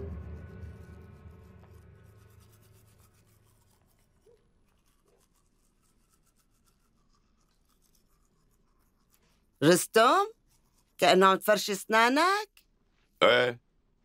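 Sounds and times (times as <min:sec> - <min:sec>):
background music: 0:00.0 - 0:03.1
toothbrush scrubbing teeth: 0:01.2 - 0:11.2.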